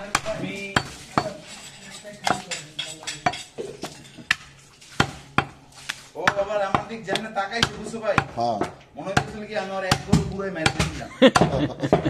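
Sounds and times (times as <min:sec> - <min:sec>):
cleaver chopping on wooden block: 0:03.2 - 0:12.0.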